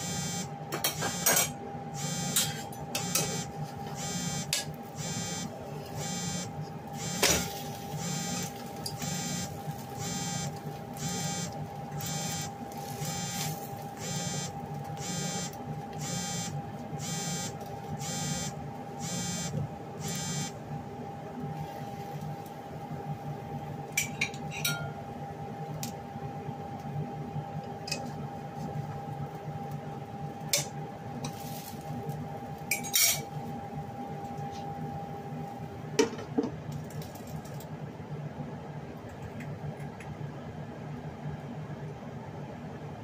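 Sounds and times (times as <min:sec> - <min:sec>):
steady hum: 0:00.0 - 0:24.1.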